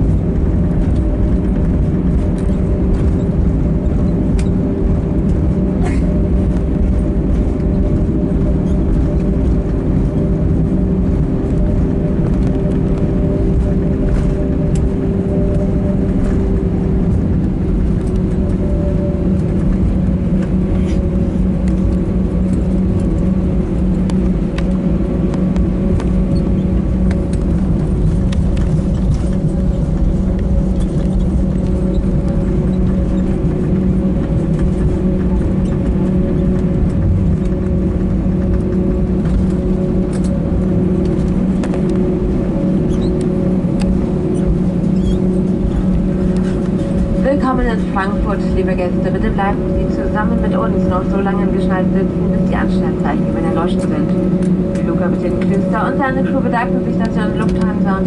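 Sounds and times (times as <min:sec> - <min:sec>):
continuous low rumble: 0:00.0 - 0:58.0
jet engines droning hum: 0:00.0 - 0:58.0.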